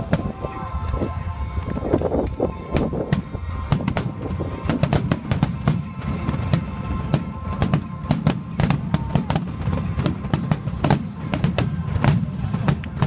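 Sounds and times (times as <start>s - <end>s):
fireworks bangs: 0.0s - 13.0s
music playing: 0.0s - 13.0s.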